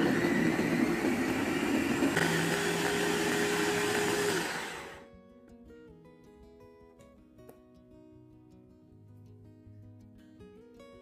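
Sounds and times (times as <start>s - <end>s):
food chopper motor running: 0.0s - 5.0s.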